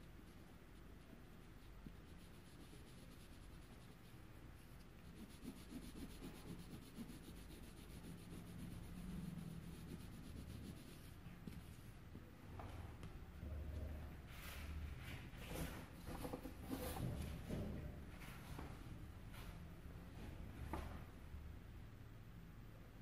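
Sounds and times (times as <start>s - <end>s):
colored pencil rubbing on paper: 0.2s - 11.7s.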